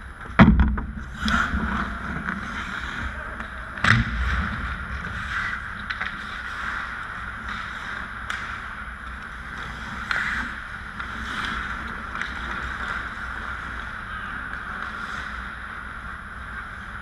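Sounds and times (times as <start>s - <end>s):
steady low rumble: 0.0s - 17.0s
sticks and puck clacking: 0.2s - 4.0s, 4.9s - 17.0s
skates scraping ice: 1.0s - 17.0s.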